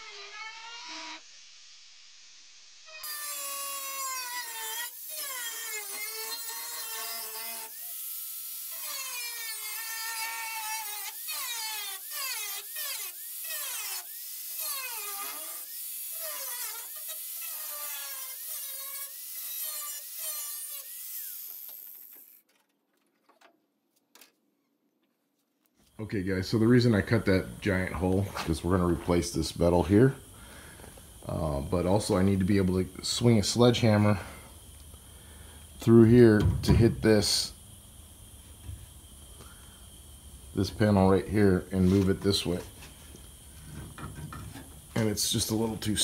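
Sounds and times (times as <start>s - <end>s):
angle grinder cutting sheet steel: 2.9s - 22.3s.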